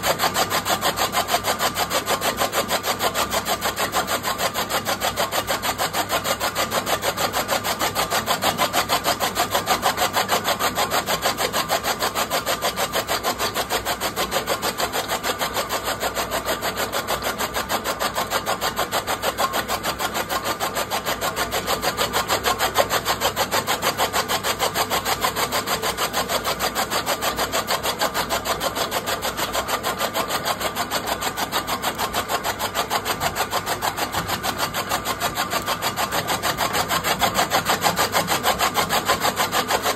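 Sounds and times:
chaff cutter chopping stalks: 17.2s - 39.9s.

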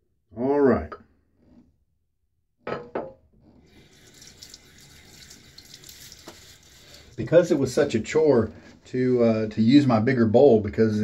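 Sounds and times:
tap running into sink: 3.7s - 6.6s.

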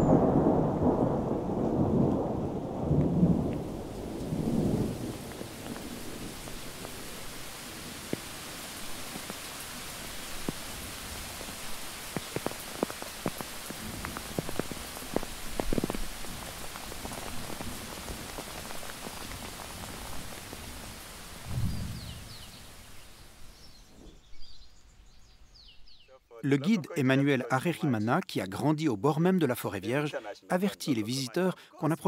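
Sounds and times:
heavy rain falling: 0.0s - 23.9s
faint bird chirps: 21.5s - 26.3s.

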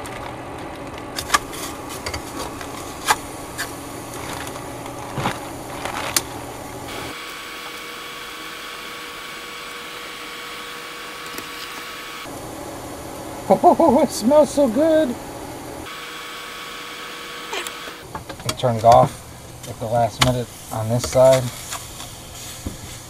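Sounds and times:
steak sizzling in a pan: 20.5s - 23.0s.

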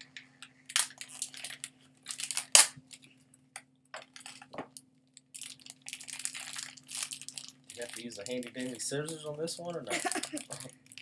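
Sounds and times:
sharp plastic crack: 0.7s - 3.0s
plastic packaging crinkling and tearing: 0.7s - 3.1s, 4.0s - 11.0s.

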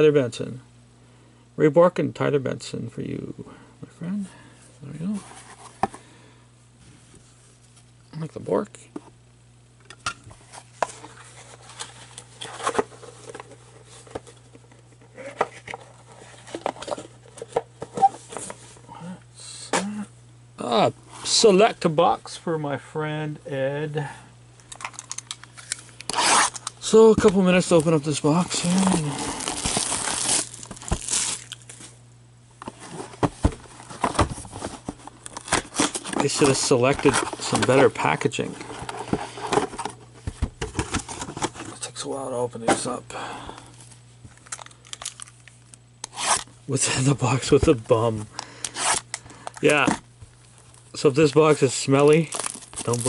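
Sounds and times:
low steady hum: 0.0s - 53.0s
cardboard boxes being handled: 27.0s - 31.4s, 32.7s - 41.8s
cardboard box rustle: 27.8s - 31.5s.

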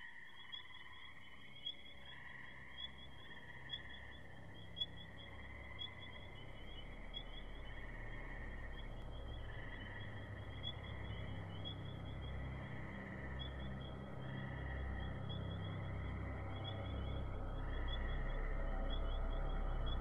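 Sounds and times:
low hum: 4.3s - 20.0s.

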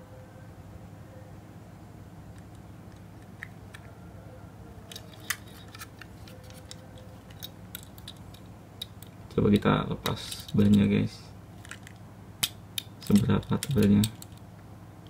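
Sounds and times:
faint steady hum: 0.0s - 15.0s
toy parts clicking: 2.3s - 4.0s, 4.8s - 11.0s, 11.6s - 14.5s.

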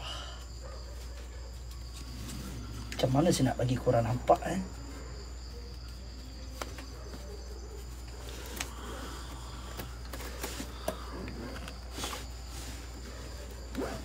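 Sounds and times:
high insect drone: 0.0s - 14.0s
faint clicks and rustles: 4.2s - 14.0s.

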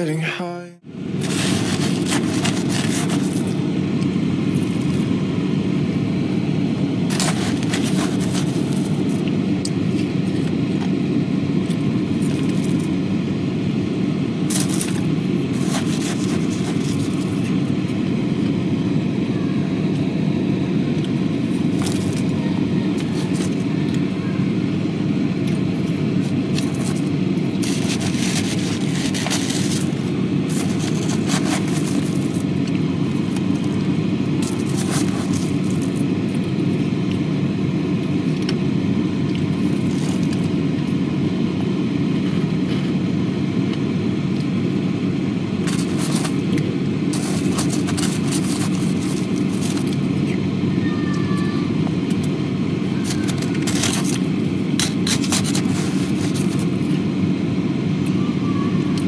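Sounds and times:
low hum: 0.0s - 59.0s
frost being chewed: 7.1s - 10.9s, 14.5s - 17.7s, 25.4s - 37.2s, 45.6s - 50.4s.

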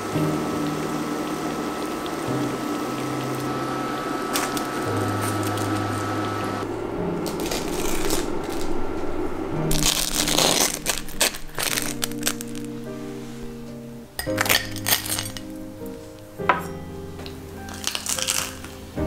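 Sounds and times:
crispy crust crunching: 7.2s - 8.8s, 9.7s - 12.8s, 17.2s - 18.9s.

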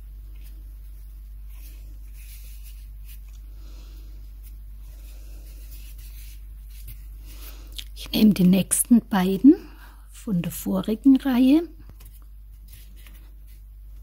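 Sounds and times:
cord rustling and rubbing: 0.0s - 3.5s, 4.1s - 7.8s, 11.8s - 14.0s
steady low hum: 0.0s - 14.0s.

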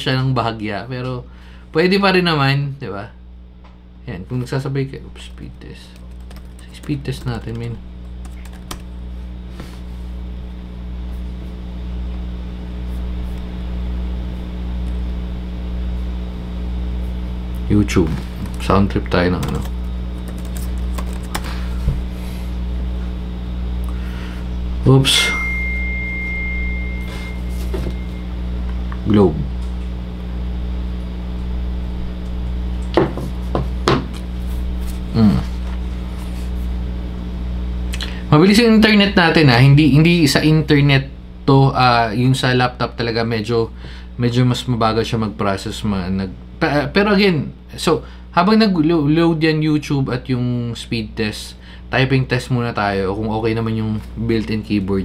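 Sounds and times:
machine hum with fan rush: 0.0s - 55.0s
taps and knocks on laptop keys: 8.2s - 8.9s, 19.4s - 21.5s
short falling tone: 25.1s - 28.4s.

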